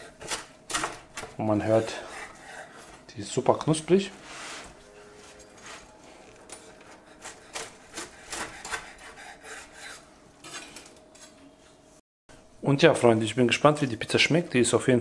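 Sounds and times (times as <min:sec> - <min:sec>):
knife sawing through crispy crust: 0:06.9 - 0:10.1.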